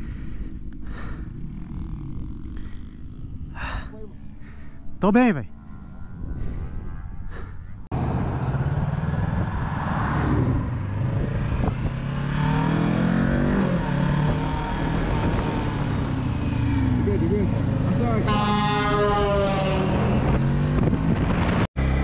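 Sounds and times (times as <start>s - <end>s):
motorcycle engine running: 0.0s - 7.9s
wind noise on microphone: 6.1s - 7.2s, 10.3s - 12.1s, 19.7s - 21.7s.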